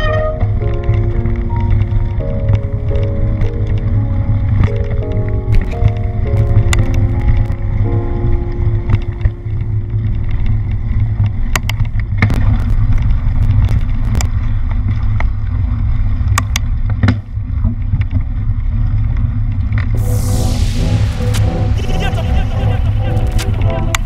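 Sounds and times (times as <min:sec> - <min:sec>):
wind rumble on microphone: 0:00.0 - 0:24.0
bike clicks and rattles: 0:08.9 - 0:19.9.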